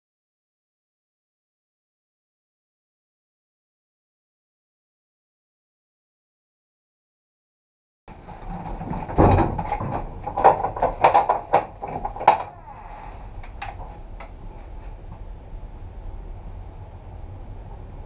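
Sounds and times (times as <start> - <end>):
metallic clanks and knocks: 8.1 - 12.8
train rumbling on the line: 12.3 - 18.0.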